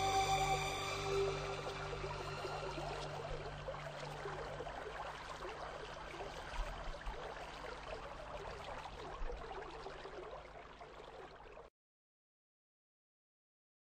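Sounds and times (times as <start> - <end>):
music track: 0.0 - 4.8
outdoor ambience hiss: 0.0 - 7.4.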